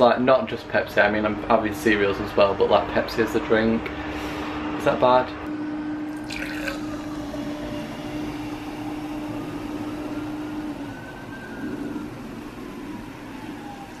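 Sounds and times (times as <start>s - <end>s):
low hum: 4.0s - 14.0s
soda fizzing in a glass: 6.1s - 7.6s.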